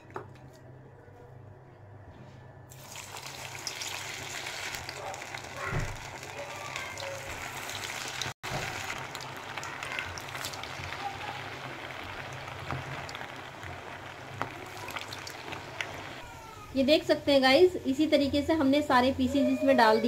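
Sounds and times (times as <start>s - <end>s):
hot oil sizzling and crackling: 2.7s - 16.4s.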